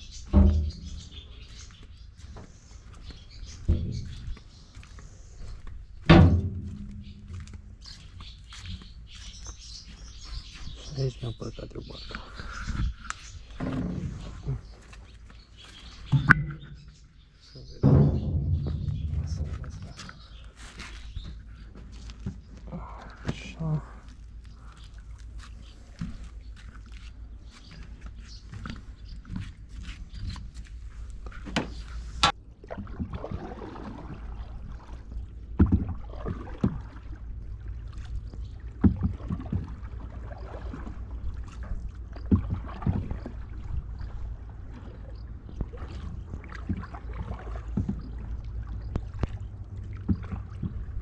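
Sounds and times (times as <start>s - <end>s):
low rumble: 3.6s - 7.9s, 16.2s - 21.6s
paddle splashing in water: 28.4s - 51.0s.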